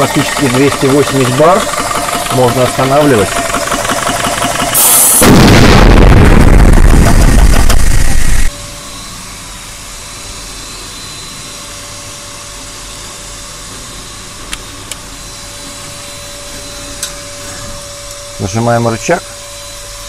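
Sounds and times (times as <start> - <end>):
air compressor running loud: 0.0 - 20.0
low steady hum with thin whine: 8.1 - 20.0.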